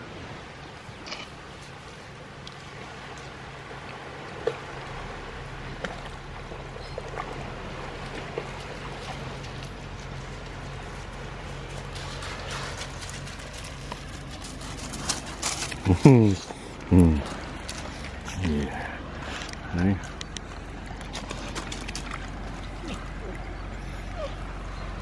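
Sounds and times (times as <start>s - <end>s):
stream water running: 0.0s - 25.0s
dog wading through water: 0.7s - 25.0s.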